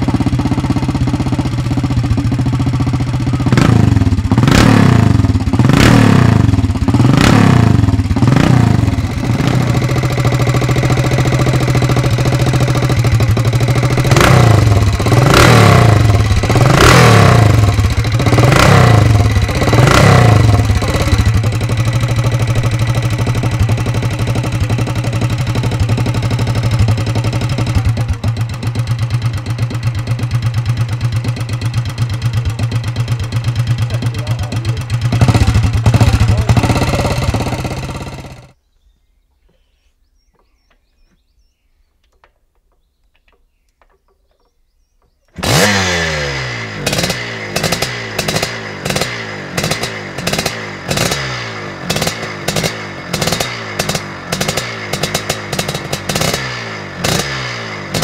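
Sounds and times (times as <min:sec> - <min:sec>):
motorcycle engine revving and idling: 0:00.0 - 0:38.6, 0:45.3 - 0:58.0
two-stroke engine starting and revving: 0:00.0 - 0:38.6, 0:45.3 - 0:58.0.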